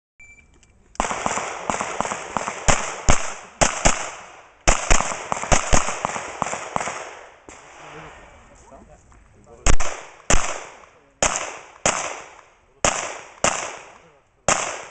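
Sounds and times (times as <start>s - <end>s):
pistol shots with echo: 1.0s - 7.8s, 9.7s - 14.9s.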